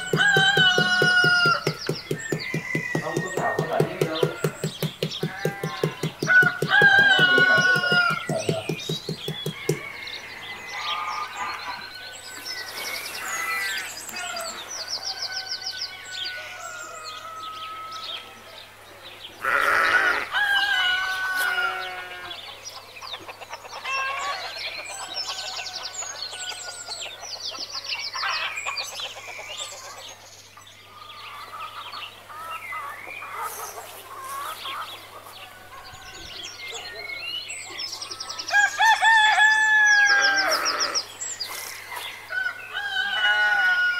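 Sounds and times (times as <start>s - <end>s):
chicken and rooster calls: 0.0s - 18.5s, 19.4s - 27.6s, 38.3s - 43.9s
songbirds chirping: 0.0s - 43.9s
loud animal call: 19.4s - 22.4s, 40.1s - 41.1s.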